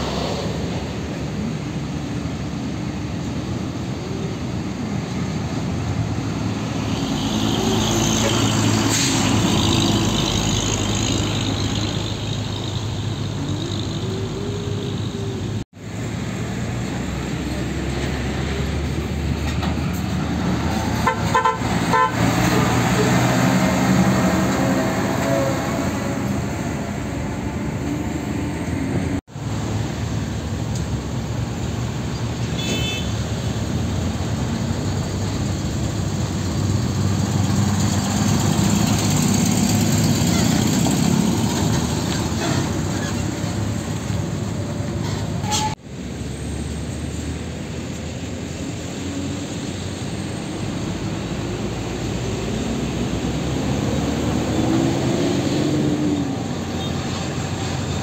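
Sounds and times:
vehicle horn toots: 0:21.0 - 0:22.3, 0:32.6 - 0:33.1
diesel truck engines running: 0:33.2 - 0:58.0.

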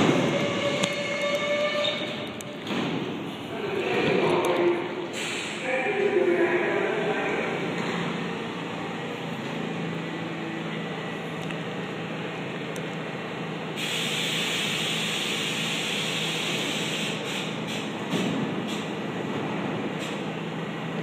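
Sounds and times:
subway train humming: 0:00.0 - 0:21.0
compressed air hissing: 0:05.1 - 0:05.6, 0:13.8 - 0:18.9.

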